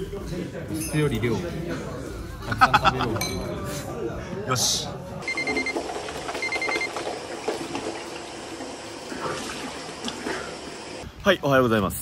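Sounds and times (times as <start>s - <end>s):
high electronic beeping: 5.2s - 5.8s.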